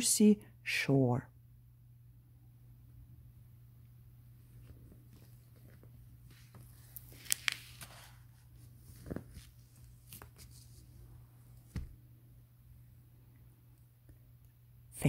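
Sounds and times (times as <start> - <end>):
book pages rustling: 4.6 - 12.0.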